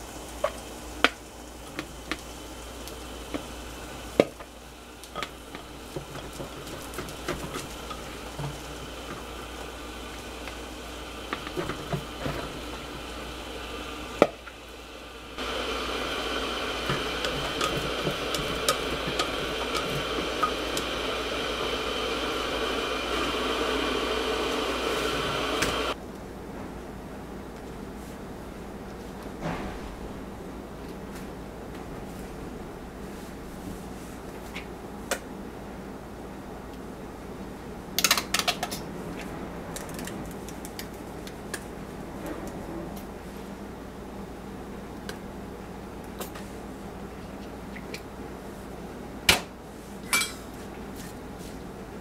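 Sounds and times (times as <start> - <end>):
steady hiss: 0.0 - 37.8.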